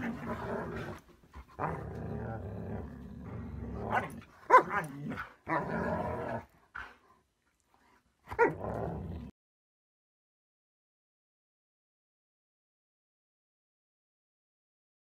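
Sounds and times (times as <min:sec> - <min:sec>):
dogs growling: 0:00.0 - 0:07.0, 0:08.3 - 0:09.3
dog barking: 0:03.9 - 0:05.3.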